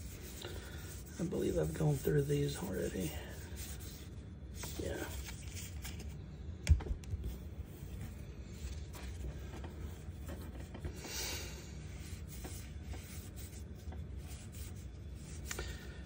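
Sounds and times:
cards sliding and rustling: 4.6 - 6.2.

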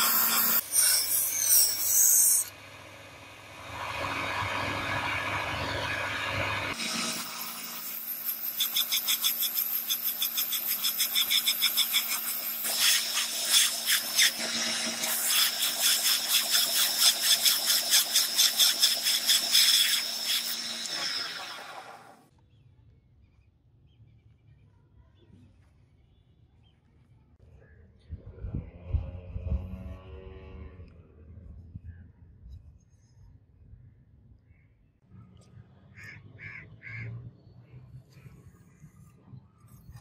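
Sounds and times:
file grinding rasp: 0.0 - 2.5, 6.7 - 22.1
belt sander motor hum: 0.0 - 22.3.

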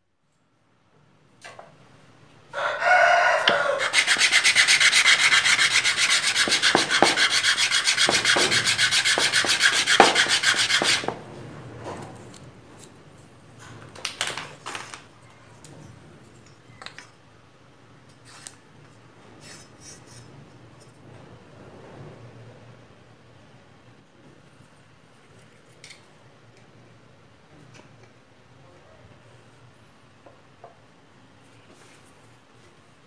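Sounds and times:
wood rubbed on sandpaper: 3.5 - 11.2
wood pieces knocking: 6.0 - 11.2.

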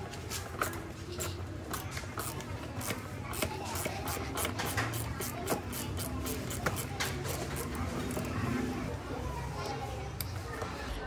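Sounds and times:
ratchet clicking: 0.6 - 8.3.

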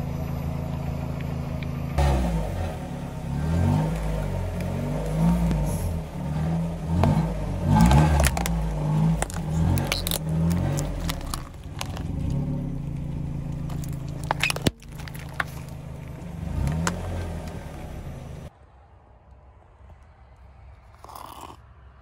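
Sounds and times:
car engine running: 0.0 - 18.5
plastic tubs cracking: 7.0 - 12.4, 13.6 - 17.1.

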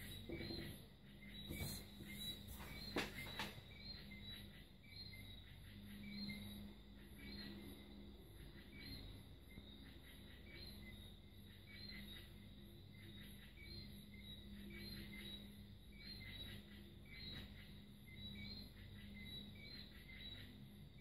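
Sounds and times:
cricket chirping: 0.0 - 21.0.

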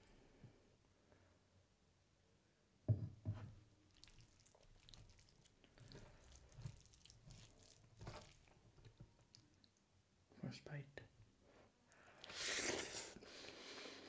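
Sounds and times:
soft wet squishes: 3.7 - 10.0
wet smacks of eating: 3.9 - 9.8.

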